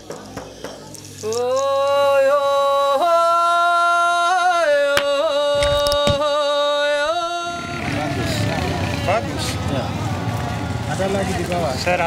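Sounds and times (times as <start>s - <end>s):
person singing long held notes: 1.2s - 8.7s.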